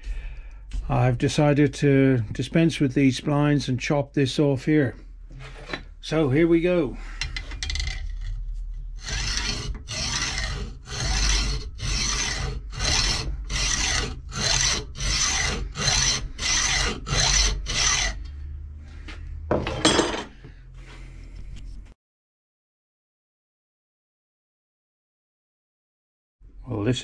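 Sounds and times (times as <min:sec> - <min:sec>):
hacksaw cutting metal: 0:09.0 - 0:18.3.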